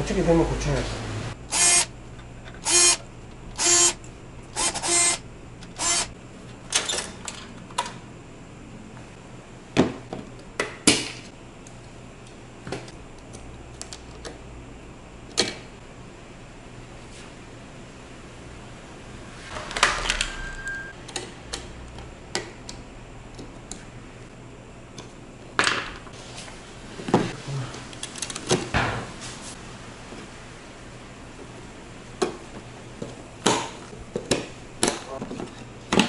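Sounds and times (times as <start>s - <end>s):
electric screwdriver whirring: 1.5s - 1.9s, 2.6s - 3.0s, 3.6s - 4.0s, 4.6s - 6.1s.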